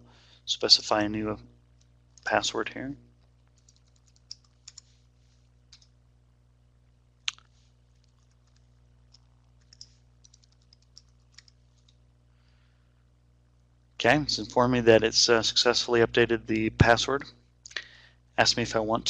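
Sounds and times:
keyboard typing: 3.5 - 4.9, 7.3 - 12.0.

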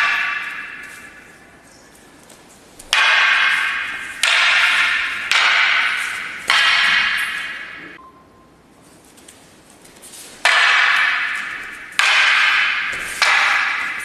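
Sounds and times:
wooden staffs clacking: 0.0 - 8.0, 9.0 - 14.0.

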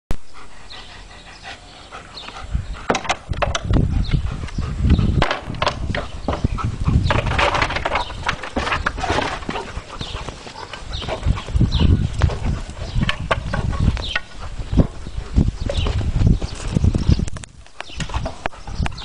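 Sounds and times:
dog paws clattering on wood: 5.2 - 19.0.

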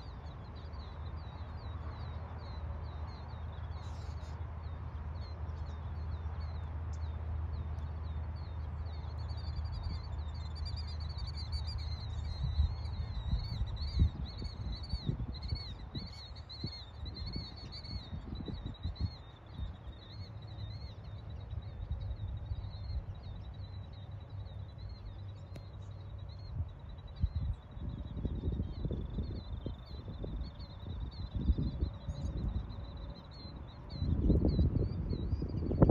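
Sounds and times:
small bird calling: 0.0 - 4.5
wind rumble on microphone: 0.0 - 35.9.

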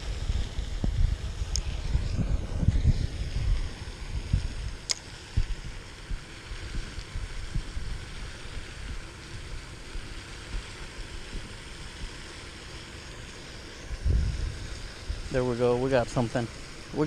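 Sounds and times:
wind buffeting microphone: 0.0 - 9.6, 13.9 - 17.0
steady hiss: 0.0 - 17.0.

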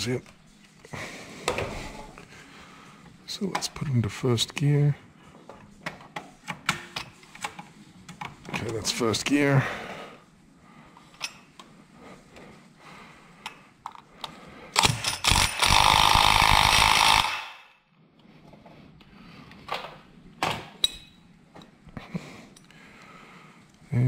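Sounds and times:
impact wrench hammering: 14.8 - 17.7
metal tools clicking and knocking: 20.8 - 21.7.

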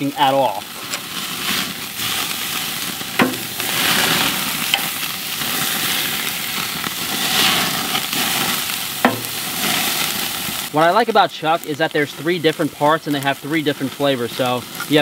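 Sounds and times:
steaks sizzling on grill: 0.0 - 15.0
metal tongs clacking on grate: 4.7 - 4.9, 9.0 - 9.4.

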